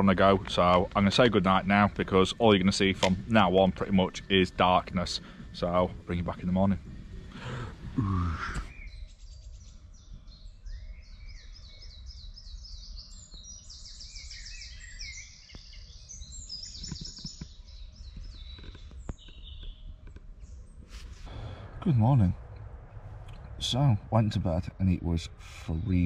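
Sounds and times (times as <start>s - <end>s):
low background rumble: 0.0s - 11.4s, 17.8s - 26.0s
songbirds trilling and chirping: 0.0s - 26.0s.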